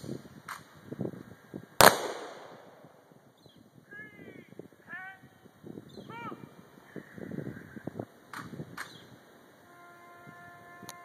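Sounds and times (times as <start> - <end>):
rifle volley crack with echo: 1.8 - 2.8.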